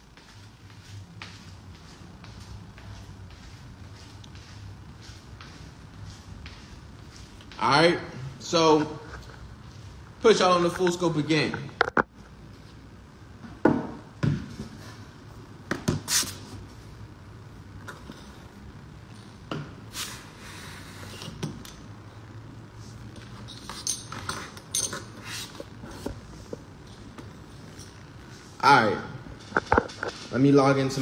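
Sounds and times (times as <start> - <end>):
low room hum: 0.0 - 31.0.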